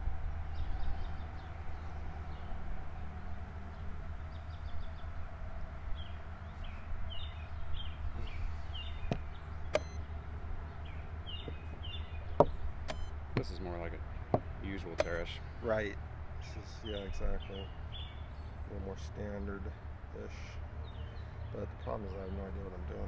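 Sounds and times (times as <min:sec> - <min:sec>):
small birds chirping: 0:00.0 - 0:23.0
chess clock click: 0:09.1 - 0:10.0, 0:15.0 - 0:15.2.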